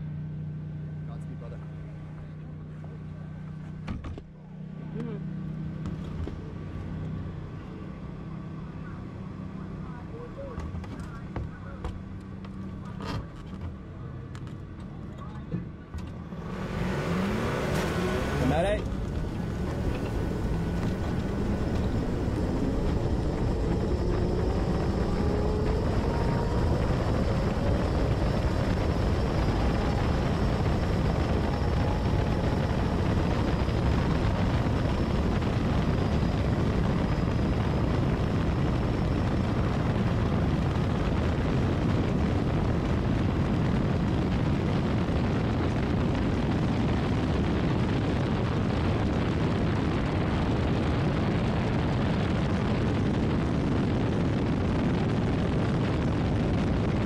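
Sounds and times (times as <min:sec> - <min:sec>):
wind roar: 0:16.2 - 0:57.0
electric motor whine rising: 0:16.3 - 0:41.6.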